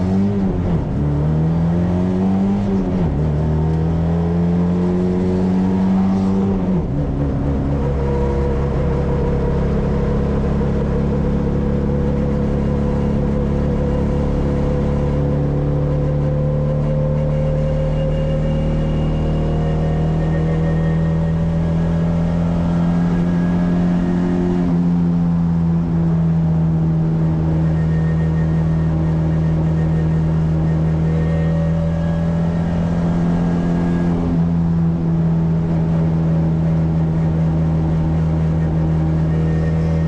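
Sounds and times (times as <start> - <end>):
car engine cruising: 0.0 - 40.0.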